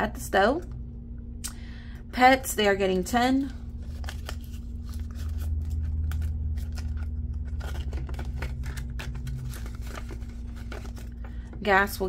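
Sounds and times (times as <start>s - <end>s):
faint low hum: 0.0s - 12.0s
banknotes rustling and crinkling: 3.3s - 11.9s
binder pages clicking and scraping: 3.8s - 11.7s.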